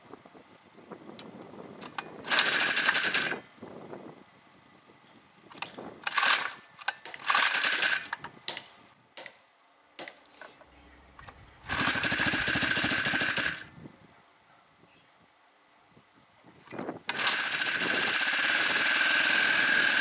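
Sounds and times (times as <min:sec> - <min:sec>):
small engine cranking rattle: 0:01.8 - 0:03.4, 0:05.5 - 0:08.2, 0:11.2 - 0:13.7, 0:16.6 - 0:20.0.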